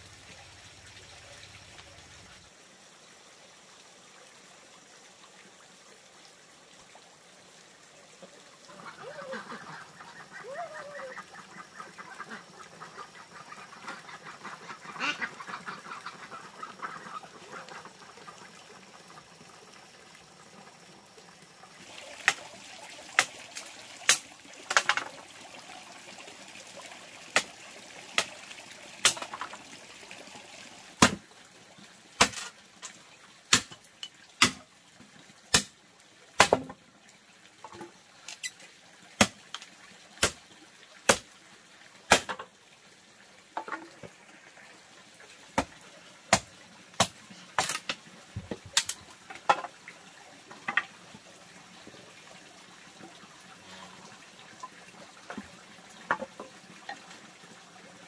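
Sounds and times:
water trickling from pipe: 0:00.0 - 0:58.0
ducks quacking: 0:08.7 - 0:18.5
knife chopping wood: 0:31.0 - 0:31.2, 0:33.5 - 0:33.7, 0:34.4 - 0:34.6, 0:35.5 - 0:35.7, 0:36.4 - 0:36.7, 0:42.1 - 0:42.4.

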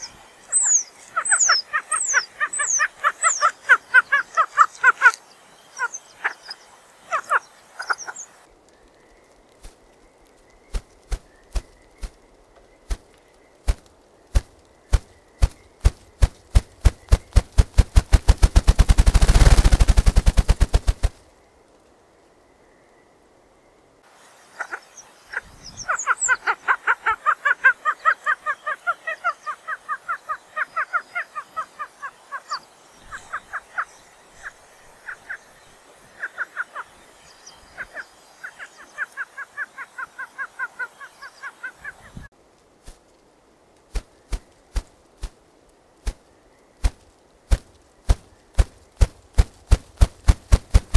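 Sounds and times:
grouse call notes: 0:00.0 - 0:08.4, 0:24.5 - 0:42.3
faint high bird chirps: 0:00.0 - 0:13.7, 0:24.2 - 0:42.3
grouse wingbeat drumming: 0:13.7 - 0:21.2, 0:46.8 - 0:50.9.

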